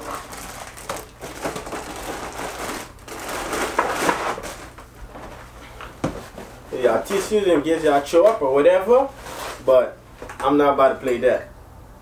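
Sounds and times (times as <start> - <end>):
plastic bag crinkling: 0.0 - 4.8.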